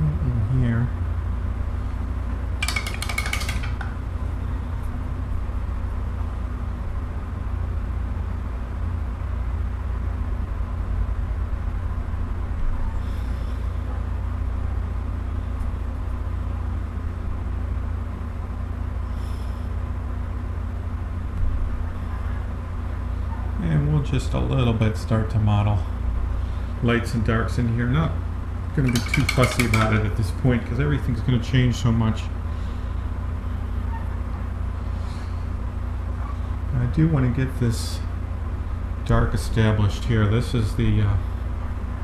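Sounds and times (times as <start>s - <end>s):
low background rumble: 0.0s - 42.0s
high ringing clatter: 2.6s - 4.0s, 28.8s - 30.2s.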